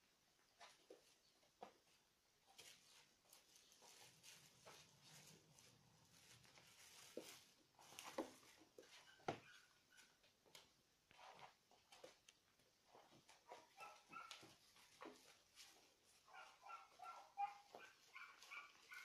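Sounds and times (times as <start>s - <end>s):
faint high squeaks: 7.8s - 10.3s, 12.9s - 14.6s.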